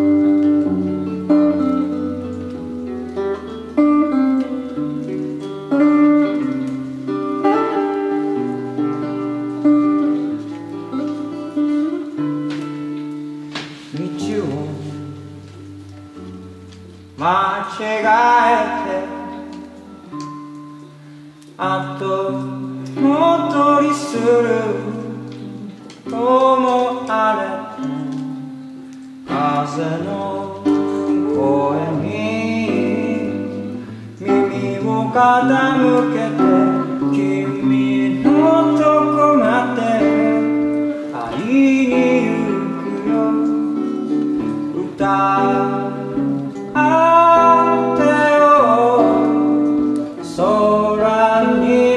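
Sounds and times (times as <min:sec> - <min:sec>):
acoustic guitar chords: 0:00.0 - 0:51.9
man singing: 0:13.8 - 0:15.7, 0:17.2 - 0:20.2, 0:21.5 - 0:51.9.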